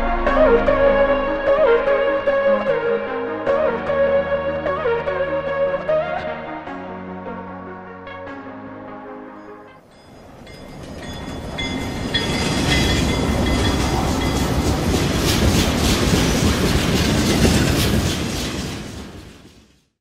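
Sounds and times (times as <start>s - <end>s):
train rumbling on rails: 9.8s - 19.9s.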